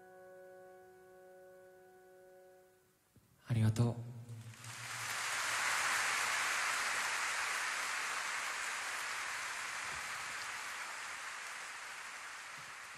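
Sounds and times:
audience applauding: 4.5 - 12.9.

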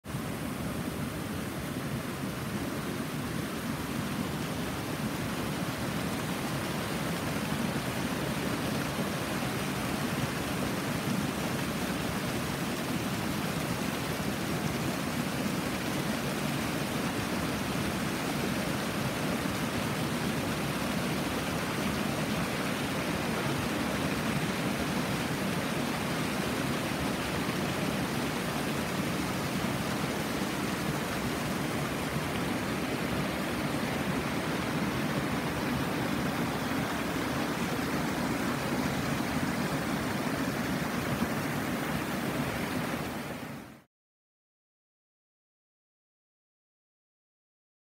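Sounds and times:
stream rushing: 0.1 - 43.9.

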